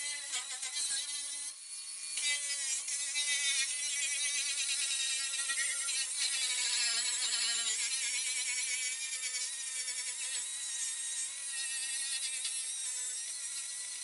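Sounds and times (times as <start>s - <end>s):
angle grinder grinding steel: 0.0s - 1.6s.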